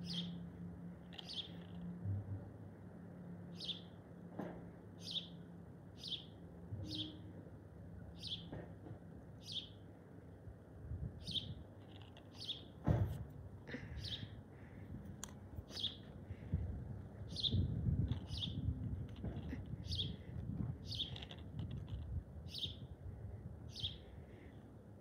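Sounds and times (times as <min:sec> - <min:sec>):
bird chirping: 0:00.0 - 0:00.4, 0:01.1 - 0:01.8, 0:03.5 - 0:03.9, 0:06.0 - 0:07.2, 0:08.2 - 0:08.5, 0:09.4 - 0:09.8, 0:11.2 - 0:12.8, 0:15.7 - 0:16.1, 0:17.3 - 0:18.7, 0:20.8 - 0:21.4, 0:22.5 - 0:22.8.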